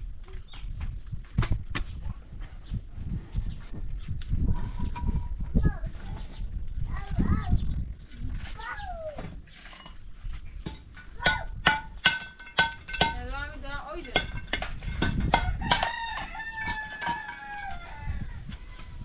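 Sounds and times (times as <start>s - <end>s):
rooster crowing: 15.4s - 18.4s.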